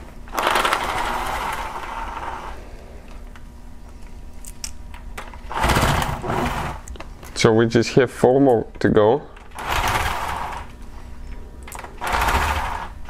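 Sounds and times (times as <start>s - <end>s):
impact tool running: 0.0s - 3.2s, 5.2s - 6.9s, 9.4s - 10.8s, 11.7s - 13.0s.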